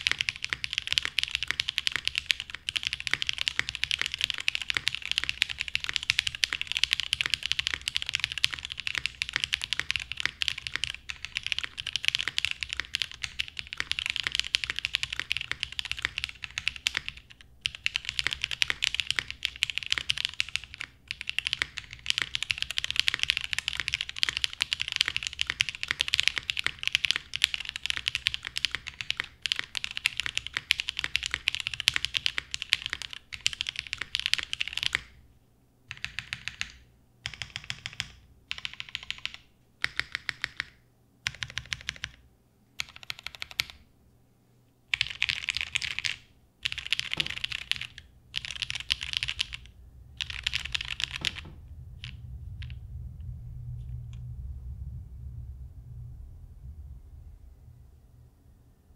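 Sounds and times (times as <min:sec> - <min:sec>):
fast mechanical keyboard typing: 0:00.0 - 0:35.2, 0:35.9 - 0:42.2, 0:42.8 - 0:43.8, 0:44.9 - 0:52.8.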